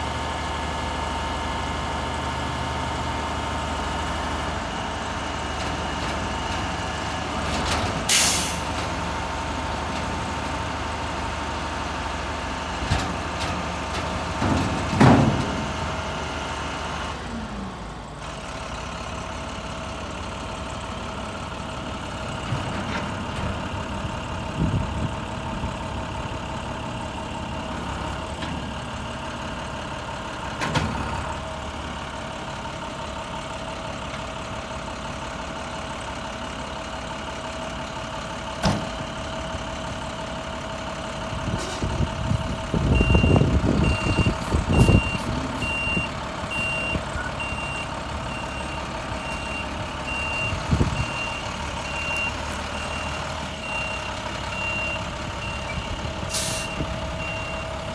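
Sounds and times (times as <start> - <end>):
truck engine running with whine: 0.0 - 57.9
short sharp hydraulic hiss: 56.3 - 56.8.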